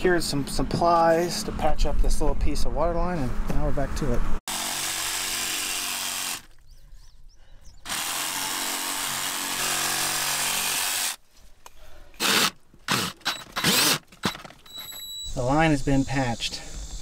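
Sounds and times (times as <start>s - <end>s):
handheld power tool running: 4.5s - 6.5s, 7.9s - 11.2s, 12.2s - 14.4s.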